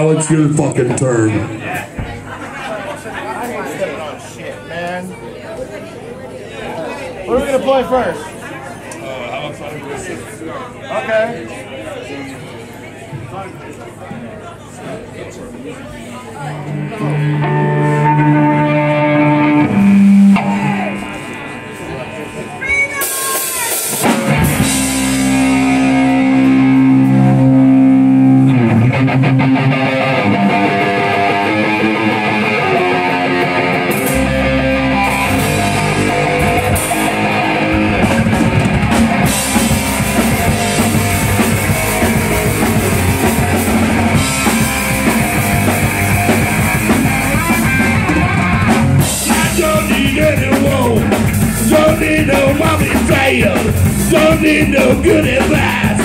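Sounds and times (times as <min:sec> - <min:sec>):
bass: 0:16.6 - 0:22.7, 0:23.3 - 0:56.0
live rock band playing: 0:16.6 - 0:56.0
ringing guitar chord: 0:16.9 - 0:22.6.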